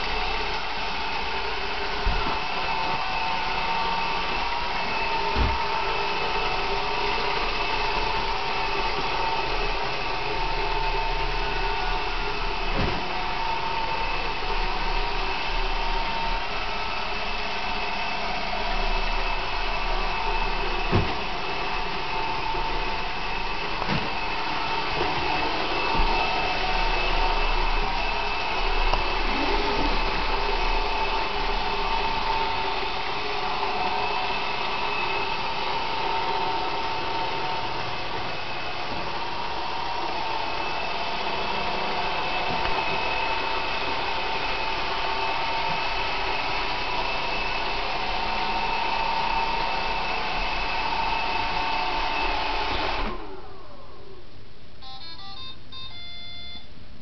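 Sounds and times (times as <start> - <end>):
robot vacuum cleaner whirring: 0.0 - 54.2.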